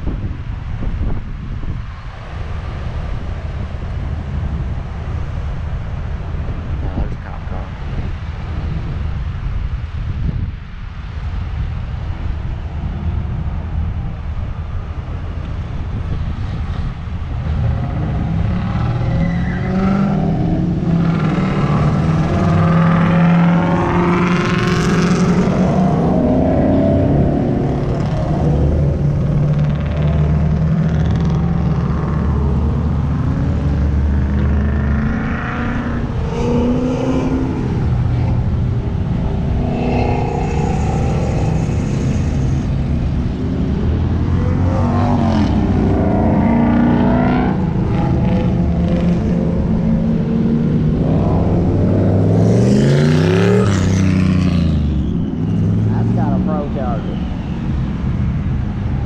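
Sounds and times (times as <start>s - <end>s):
deep engine rumble: 0.0s - 59.0s
cars accelerating past: 15.1s - 59.0s.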